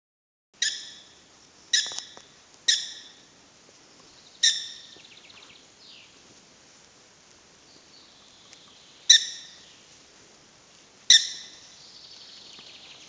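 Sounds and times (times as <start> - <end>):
prairie dogs chirping barks: 0.6 - 1.1, 1.7 - 3.2, 4.4 - 5.4, 9.0 - 9.6, 11.1 - 11.7.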